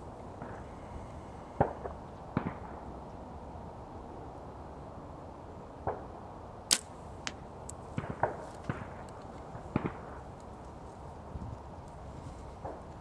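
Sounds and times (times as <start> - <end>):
bow string crack: 6.7 - 7.8.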